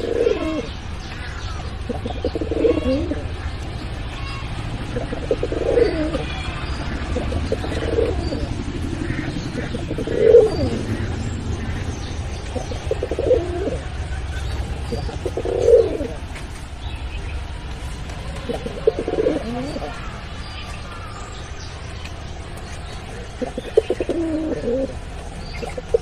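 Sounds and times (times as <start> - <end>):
pigeon cooing: 0.0 - 0.9, 1.8 - 3.4, 4.1 - 16.4, 18.1 - 20.3, 22.7 - 26.0
low hum: 3.1 - 26.0.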